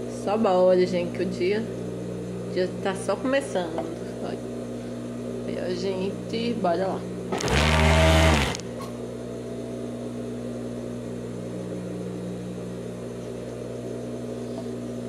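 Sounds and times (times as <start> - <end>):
sewing machine stitching: 7.3 - 8.6
sewing machine motor humming: 7.3 - 8.7.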